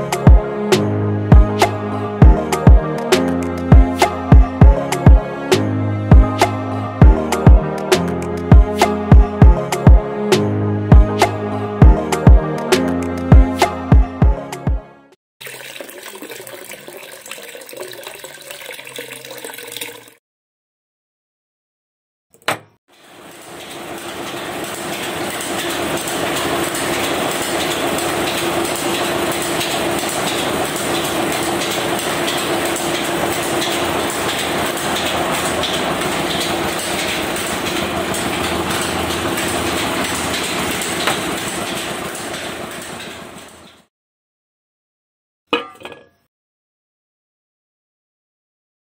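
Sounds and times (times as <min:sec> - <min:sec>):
mixer drum rattling: 0:22.4 - 0:43.8.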